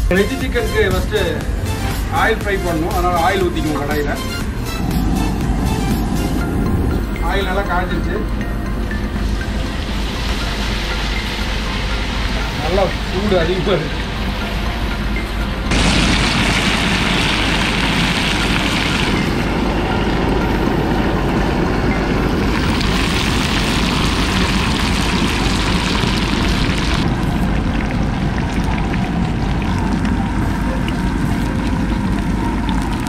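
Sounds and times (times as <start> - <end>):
food deep-frying in hot oil: 15.7 - 19.4, 22.5 - 33.0.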